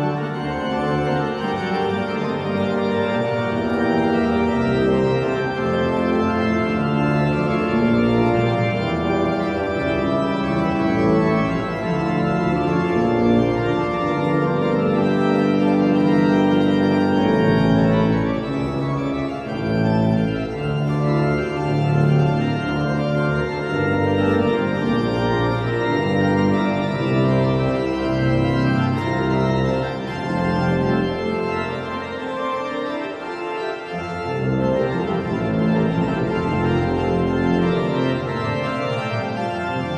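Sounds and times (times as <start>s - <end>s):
organ playing held chords: 0.0s - 39.9s.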